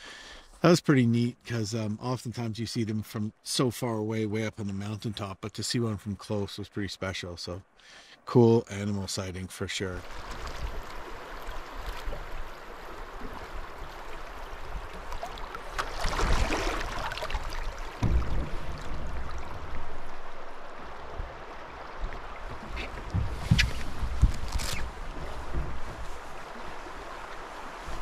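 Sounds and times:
river water rushing past canoe: 10.0s - 28.0s
low thumps: 17.9s - 21.4s, 22.4s - 26.2s.

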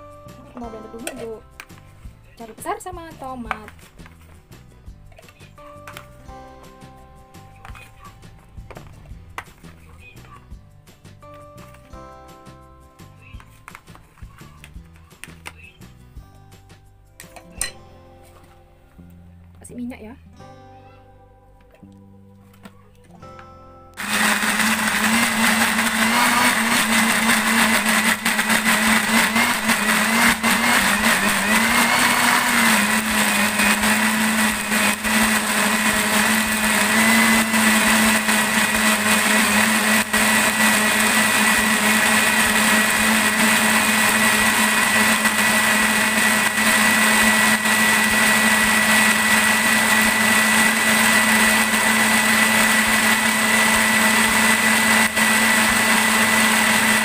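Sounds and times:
blender motor running: 24.0s - 57.0s.

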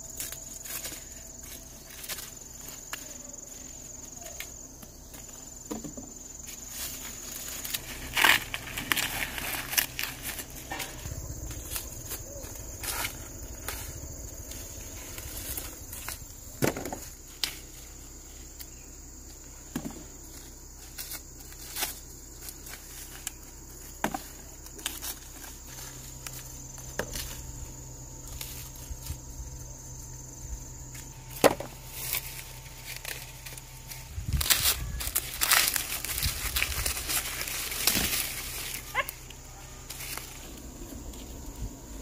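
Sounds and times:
dried leaves crackling: 0.0s - 5.6s, 6.2s - 42.0s
high insect drone: 0.0s - 42.0s
corn ears snapping: 6.8s - 17.8s, 20.8s - 27.4s, 31.0s - 40.6s.

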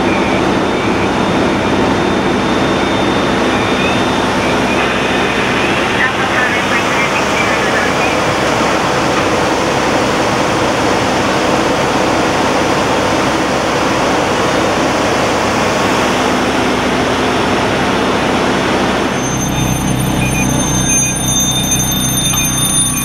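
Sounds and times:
fire truck engine and pump rushing: 0.0s - 23.0s
low hum: 0.0s - 23.0s
short high repeating beeps: 19.2s - 23.0s.

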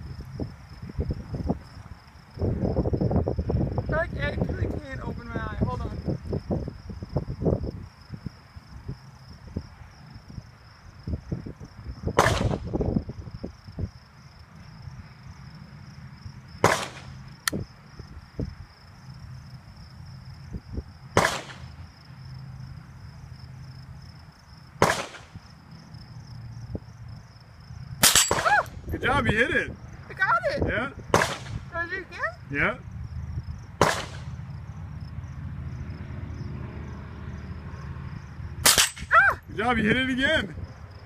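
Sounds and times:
insects trilling: 0.0s - 41.0s
rifle shots: 12.2s - 12.6s, 16.6s - 17.2s, 21.2s - 21.7s, 24.8s - 25.4s, 28.0s - 28.6s, 31.2s - 31.6s, 33.8s - 34.3s, 38.6s - 39.1s.

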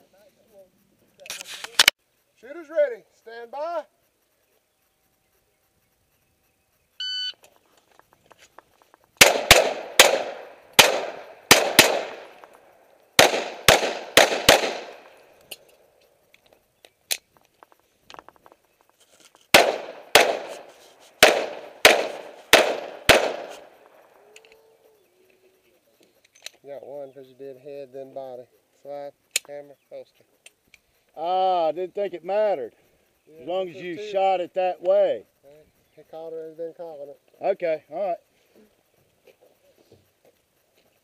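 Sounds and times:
shot timer beep: 7.0s - 7.4s
pistol shots echoing: 9.2s - 12.6s, 13.2s - 15.3s, 19.5s - 24.0s.

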